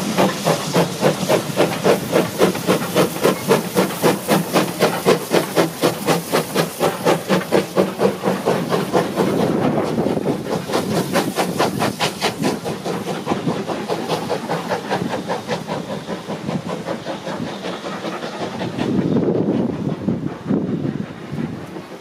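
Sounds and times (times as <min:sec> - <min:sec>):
hissing steam: 0:00.0 - 0:22.0
steam locomotive chuffing: 0:00.0 - 0:22.0.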